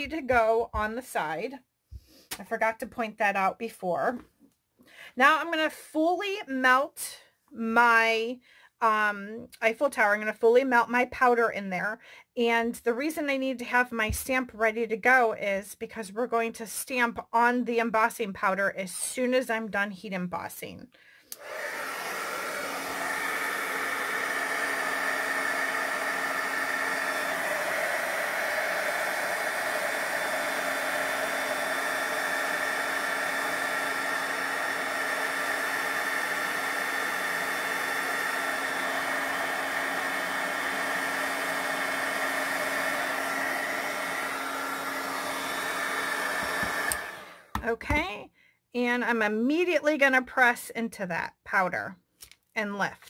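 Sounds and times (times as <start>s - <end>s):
heat tool fan whirring: 21.4s - 47.6s.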